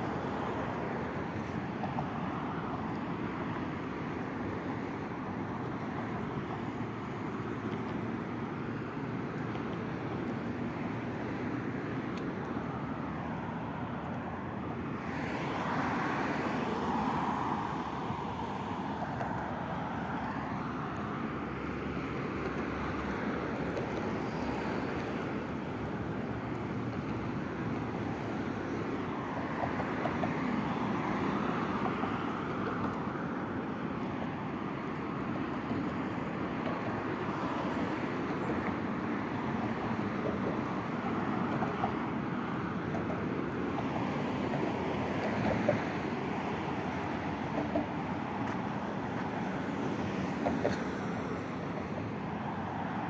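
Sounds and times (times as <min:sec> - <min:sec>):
road traffic passing: 0:00.0 - 0:53.0.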